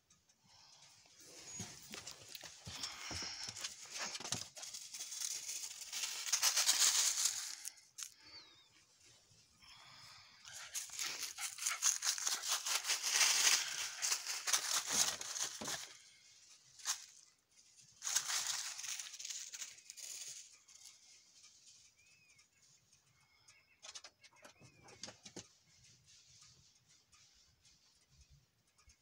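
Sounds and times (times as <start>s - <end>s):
footsteps crunching dry leaves: 1.3s - 8.2s, 10.5s - 16.1s, 16.8s - 17.2s, 18.0s - 20.5s
faint bird chirps: 8.1s - 11.1s, 18.3s - 29.0s.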